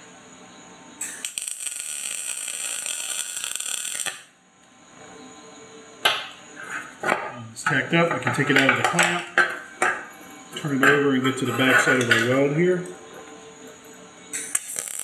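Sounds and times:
welder arc crackling: 1.0 - 4.4, 14.4 - 15.0.

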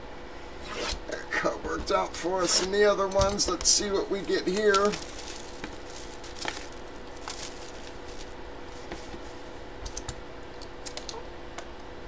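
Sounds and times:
faint steady hum: 0.0 - 12.0
wrapper and cardboard rustling: 2.4 - 9.6.

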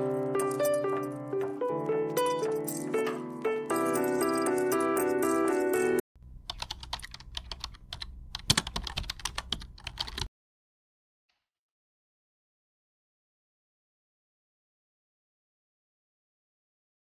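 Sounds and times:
light background music: 0.0 - 6.0
computer keyboard typing: 2.2 - 10.3.

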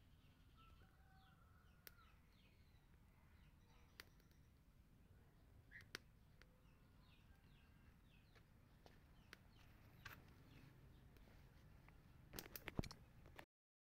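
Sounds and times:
bird chirping: 0.0 - 11.6.

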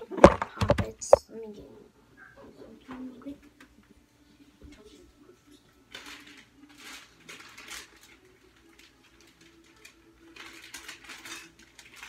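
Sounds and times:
plastic bag crinkling: 5.9 - 12.0.

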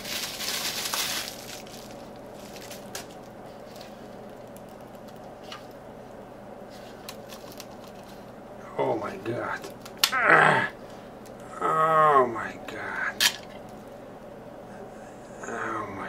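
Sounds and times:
bubble wrap crinkling: 0.0 - 5.8, 6.7 - 8.4.

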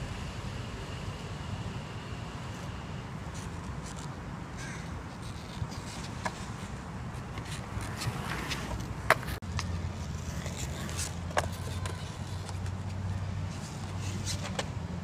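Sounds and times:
skateboard scrapes: 5.1 - 9.4, 10.0 - 12.8, 13.5 - 14.7
skateboard wheels rumbling on concrete: 5.1 - 14.8
skateboard clicks: 5.2 - 13.0.

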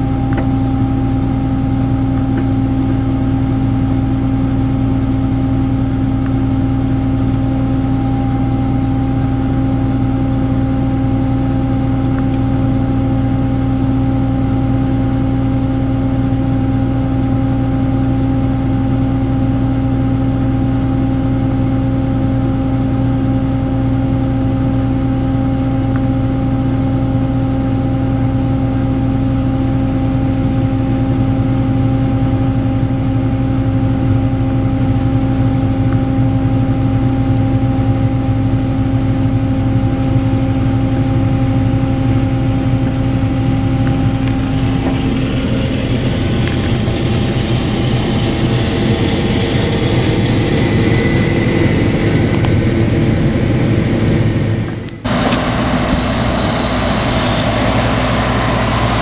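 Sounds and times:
vehicle engine humming: 38.4 - 59.0.

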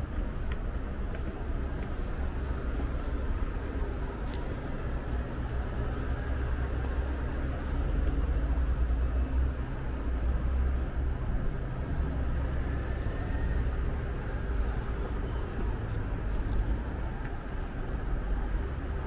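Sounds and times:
city road traffic hum: 0.0 - 19.0.

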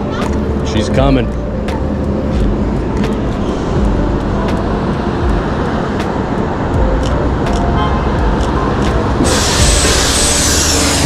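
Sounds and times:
bus approaching: 0.0 - 11.0
city traffic rumble: 0.0 - 11.0
loud hiss: 9.2 - 11.0.

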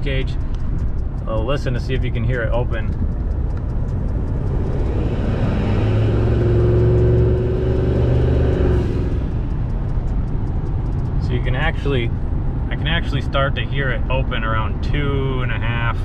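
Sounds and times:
truck engine accelerating: 0.0 - 14.8
loud exhaust note: 4.1 - 9.5.

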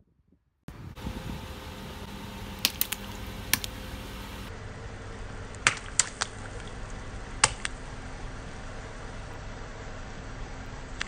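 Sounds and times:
steady low background noise: 0.7 - 11.0
water balloons popping: 1.0 - 4.5, 5.6 - 6.8, 7.4 - 7.7.

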